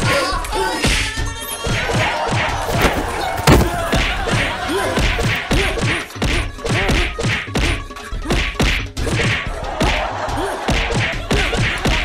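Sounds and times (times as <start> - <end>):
punch and thud effects: 2.7 - 4.3.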